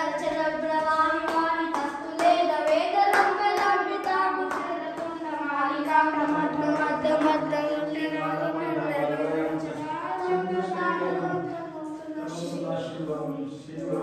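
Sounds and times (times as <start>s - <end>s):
person singing long notes: 6.0s - 11.7s.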